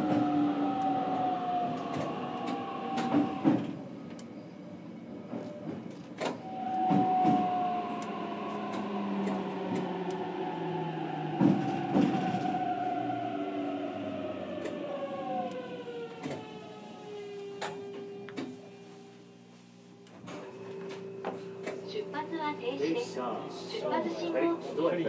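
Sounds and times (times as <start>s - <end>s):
train motor whine: 0.0s - 4.5s, 5.3s - 18.9s
wheels rumbling on rail: 0.0s - 19.5s.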